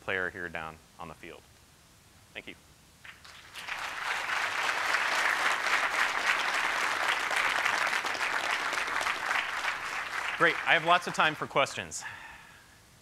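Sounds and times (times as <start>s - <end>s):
audience applauding: 3.0s - 11.6s.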